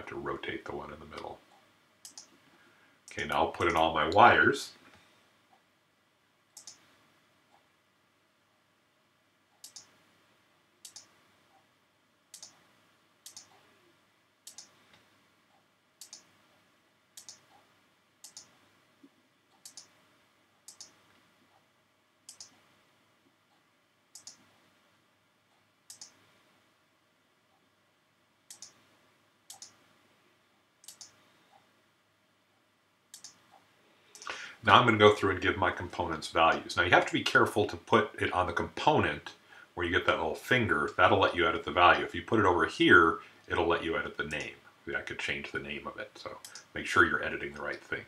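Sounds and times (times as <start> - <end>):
computer mouse clicking: 2.0 - 2.4, 6.6 - 6.9, 9.6 - 10.0, 10.8 - 11.6, 12.3 - 13.7, 14.4 - 15.1, 16.0 - 16.4, 17.2 - 18.6, 19.5 - 20.0, 20.6 - 21.6, 22.3 - 22.7, 24.1 - 24.5, 25.9 - 26.2, 28.5 - 28.8, 29.5 - 29.8, 30.8 - 31.6, 33.1 - 34.4, 46.4 - 46.7.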